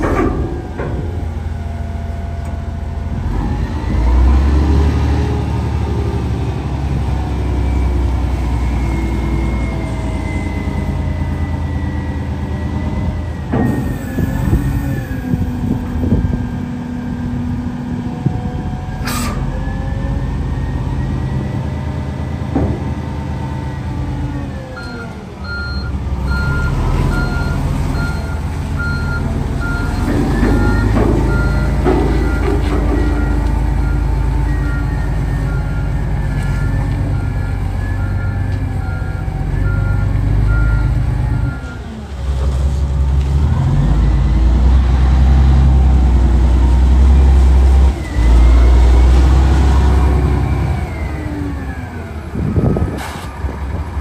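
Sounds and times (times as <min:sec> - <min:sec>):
diesel engine revving: 0:00.0 - 0:54.0.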